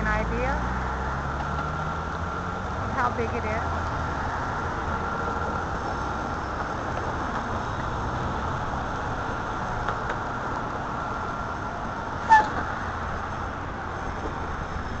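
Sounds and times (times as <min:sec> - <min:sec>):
city street traffic rumble: 0:00.0 - 0:15.0.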